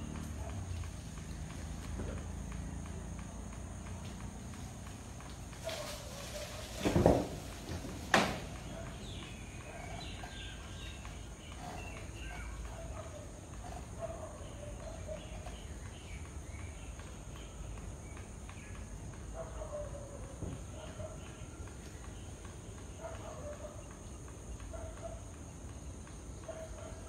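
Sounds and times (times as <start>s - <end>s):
outdoor background noise: 0.0s - 27.0s
faint bird chirping: 8.5s - 27.0s.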